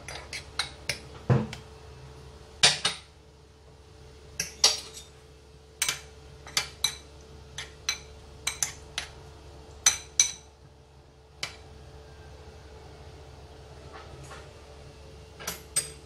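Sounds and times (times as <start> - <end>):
metal spoon clinking in a bowl: 4.4 - 5.1, 5.8 - 9.1.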